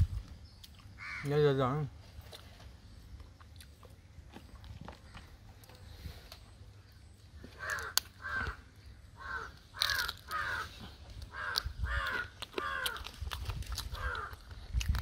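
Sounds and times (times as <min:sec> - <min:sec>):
crow cawing: 0:01.0 - 0:01.4, 0:07.5 - 0:13.1, 0:14.0 - 0:14.4.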